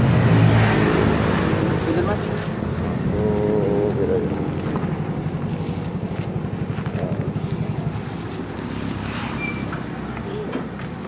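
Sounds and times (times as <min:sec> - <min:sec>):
motorcycle engine idling: 0:03.4 - 0:08.7.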